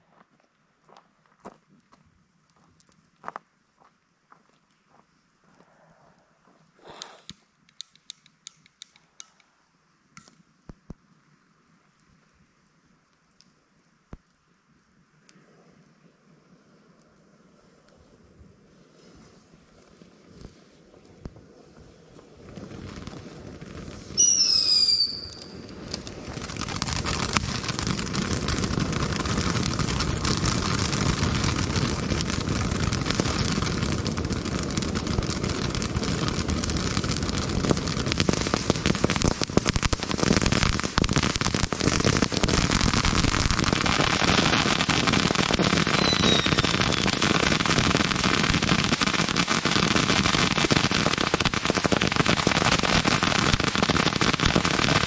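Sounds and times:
firework fountain hissing and crackling: 0:06.8 - 0:09.5, 0:19.2 - 0:55.0
falling whistle: 0:24.2 - 0:25.6, 0:45.9 - 0:47.1.

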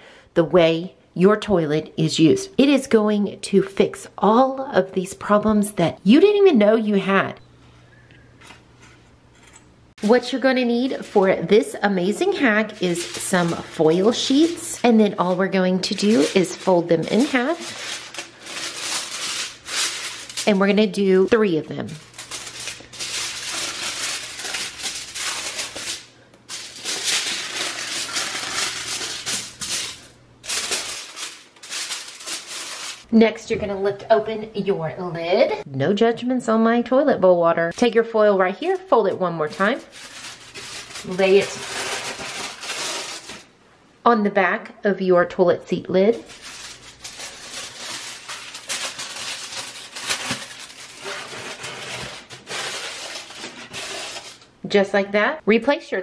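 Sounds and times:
aluminium foil crinkling: 0:10.0 - 0:33.1, 0:38.7 - 0:43.5, 0:46.2 - 0:54.5.

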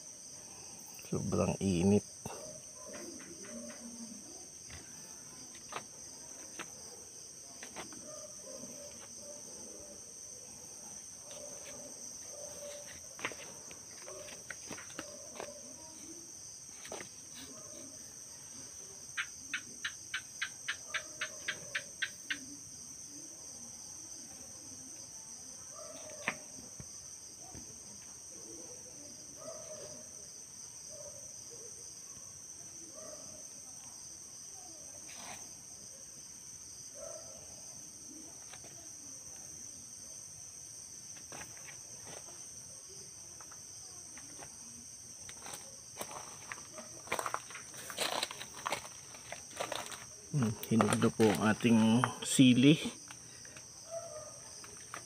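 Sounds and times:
crickets chirring: 0:00.0 - 0:55.0.

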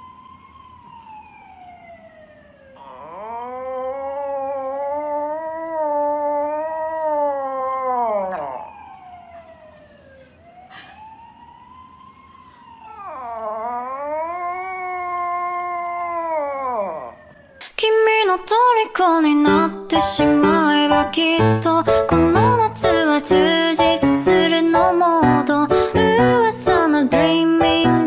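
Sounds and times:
dog howling: 0:02.8 - 0:09.2, 0:12.9 - 0:17.4.

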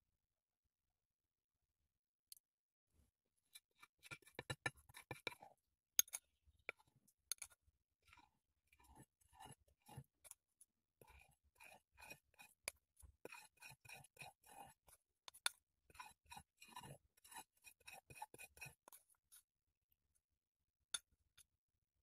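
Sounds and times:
spoon scraping ceramic plate: 0:03.8 - 0:10.4, 0:11.0 - 0:19.2.

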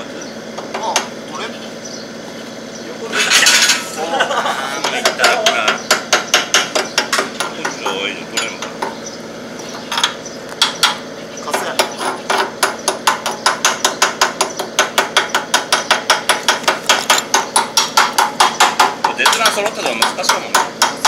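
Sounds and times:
hammer tapping on metal: 0:04.8 - 0:09.0, 0:09.9 - 0:21.0.

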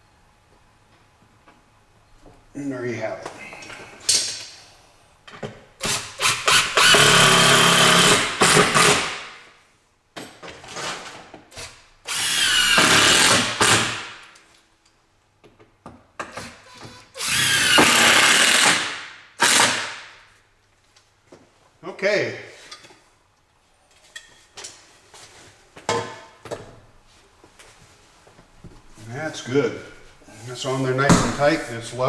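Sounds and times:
cordless driver running screws: 0:05.9 - 0:09.0.

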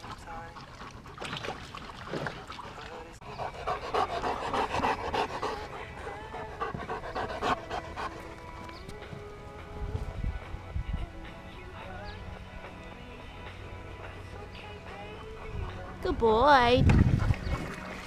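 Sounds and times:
dogs panting: 0:00.0 - 0:09.4, 0:14.8 - 0:18.0
music playing: 0:04.2 - 0:18.0.

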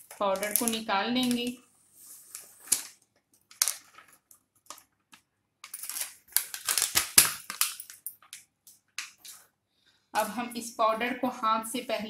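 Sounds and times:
foil packet crinkling: 0:00.0 - 0:01.6, 0:02.2 - 0:08.4
crackly rustling: 0:00.0 - 0:09.6.

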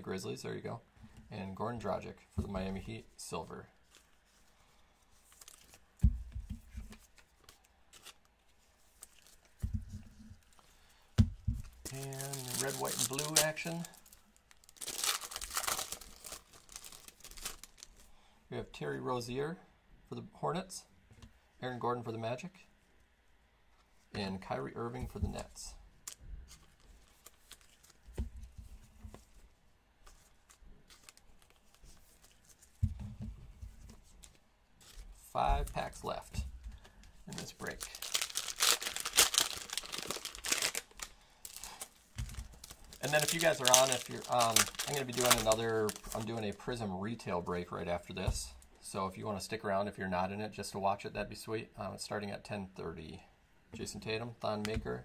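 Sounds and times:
cards rustling: 0:03.8 - 0:06.0, 0:06.6 - 0:10.8, 0:11.6 - 0:18.1, 0:25.1 - 0:29.4, 0:30.0 - 0:32.8, 0:33.7 - 0:46.8
cellophane wrapper crinkling: 0:05.2 - 0:06.0, 0:11.6 - 0:18.1, 0:26.0 - 0:28.1, 0:30.2 - 0:32.8, 0:37.3 - 0:46.7
dull thumps: 0:32.8 - 0:33.8.

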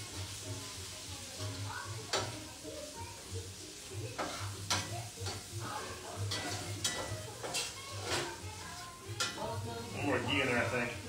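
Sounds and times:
mushrooms sizzling in a frying pan: 0:00.0 - 0:11.0
utensil scraping a pan: 0:04.0 - 0:10.8.

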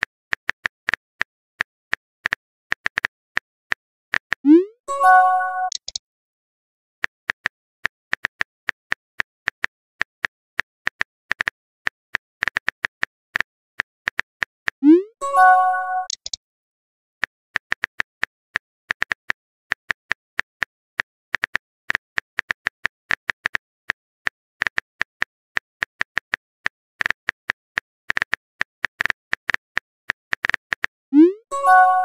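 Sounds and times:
message chime: 0:04.5 - 0:05.8, 0:14.8 - 0:16.2, 0:31.2 - 0:32.0
phone keyboard clicks: 0:05.6 - 0:06.0, 0:16.0 - 0:16.4.

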